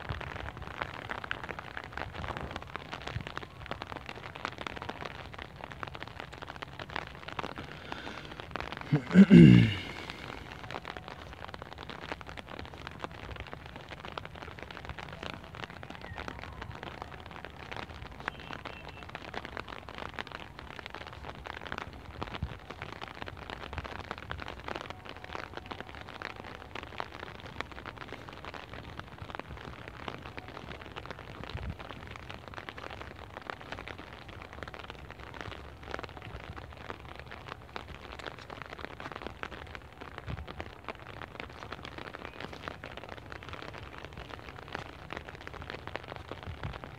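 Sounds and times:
fine even crackle: 9.8s - 46.9s.

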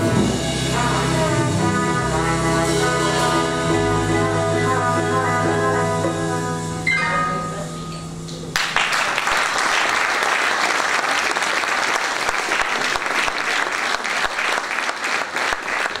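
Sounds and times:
band playing chord: 0.0s - 8.6s
audience applause: 8.5s - 16.0s.

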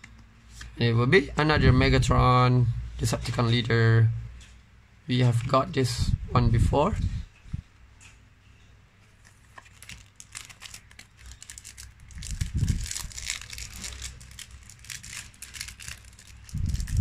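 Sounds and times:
wrapper crinkling and tearing: 9.3s - 17.0s.

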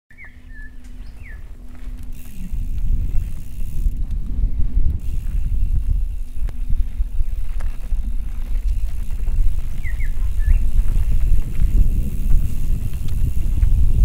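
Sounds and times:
bird chirping: 0.1s - 1.7s, 9.5s - 10.8s
bike tyres rumbling on dirt: 0.2s - 14.0s.

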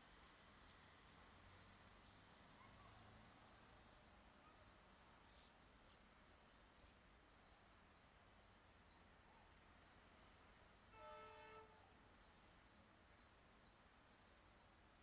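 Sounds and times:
distant train horn: 10.9s - 12.0s.

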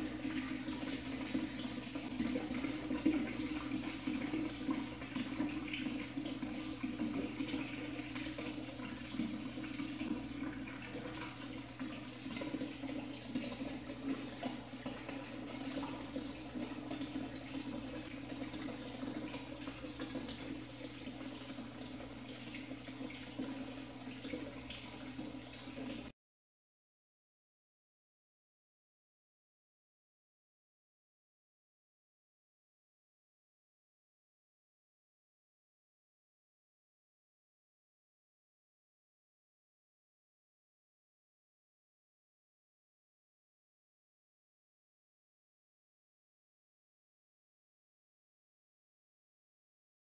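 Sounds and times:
water pouring into tube: 0.0s - 26.1s.

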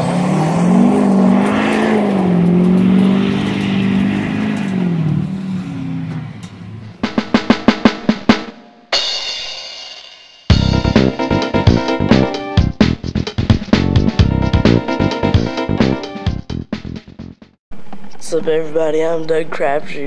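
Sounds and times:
snare drum roll: 7.0s - 8.6s.

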